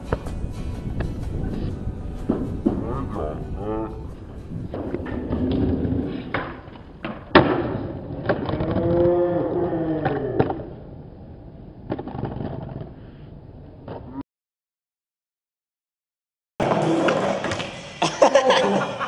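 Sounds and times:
skateboard wheels rolling: 4.1 - 14.0, 16.6 - 18.0
skateboard scraping slide: 4.2 - 8.7, 16.6 - 18.1
skateboard loud crack: 4.7 - 10.9, 11.8 - 13.0
skateboard landing clack: 4.8 - 8.9, 10.0 - 10.7, 11.8 - 12.9.

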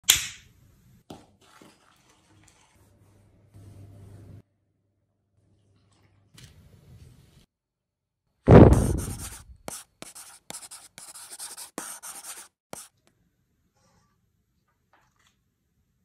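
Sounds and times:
loud deep hit: 8.5 - 9.2
pen scratching on paper: 8.5 - 12.9.

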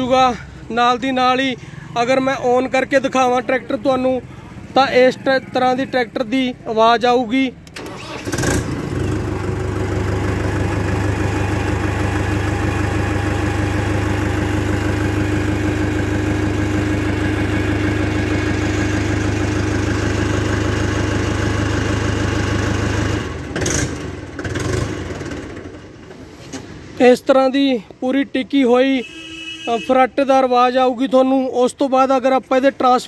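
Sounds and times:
tractor engine starting and idling: 7.3 - 27.0.

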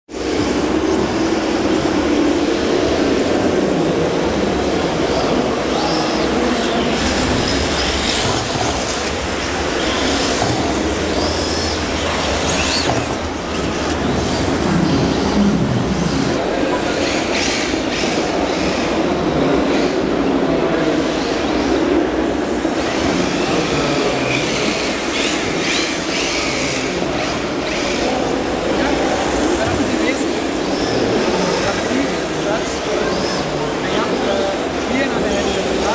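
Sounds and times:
busy hall crowd din: 0.1 - 35.9.

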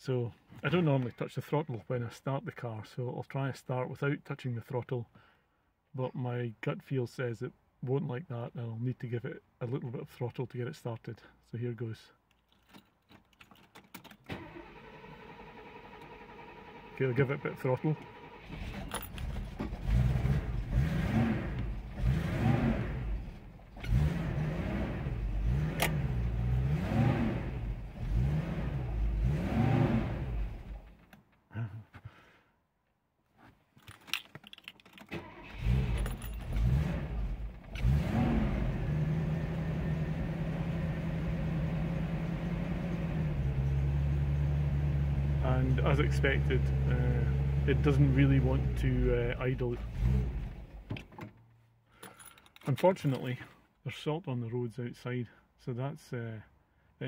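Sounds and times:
car engine revving: 19.5 - 30.8, 35.2 - 50.7.

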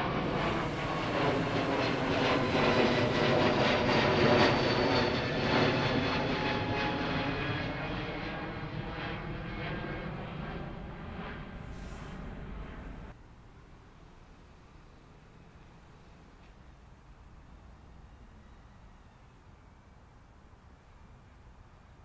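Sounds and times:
jet airliner roaring overhead: 0.0 - 13.2.

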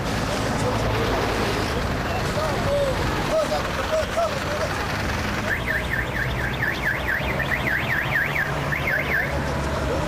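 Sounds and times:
electronic siren warbling: 5.5 - 9.4.

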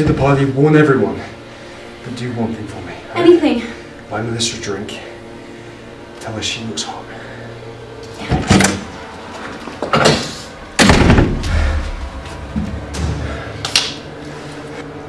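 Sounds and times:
heavy door slamming and banging: 10.0 - 13.6
low rumble: 10.6 - 14.2.

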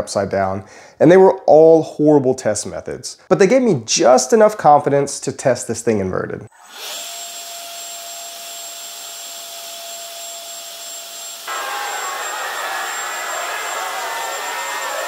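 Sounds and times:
electric fans whining: 11.4 - 15.0.

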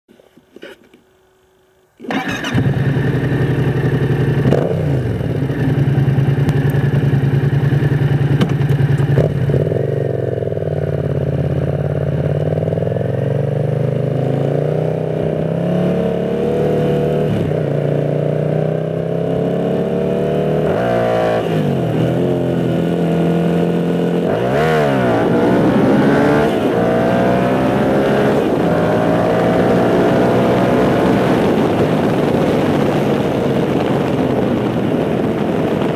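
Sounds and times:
motorcycle engine shifting gears: 2.0 - 35.9.

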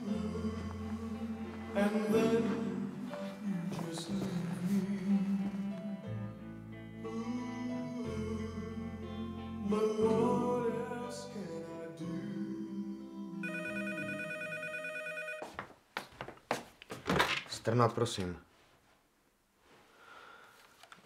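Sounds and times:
soft background music: 0.0 - 14.7
telephone bell ringing: 13.4 - 15.5.

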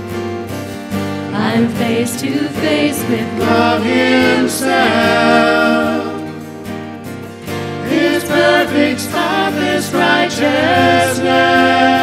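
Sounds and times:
acoustic guitars and bass: 0.0 - 12.0
voices singing: 1.4 - 6.6, 7.8 - 12.0.

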